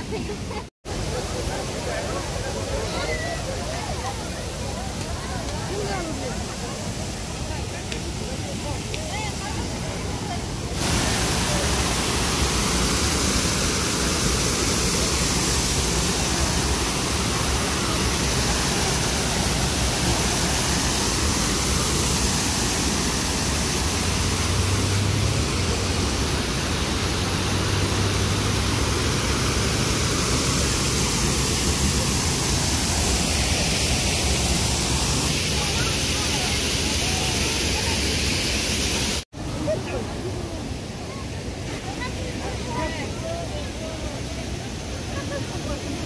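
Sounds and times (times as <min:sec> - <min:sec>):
water rushing over weir: 0:00.0 - 0:46.0.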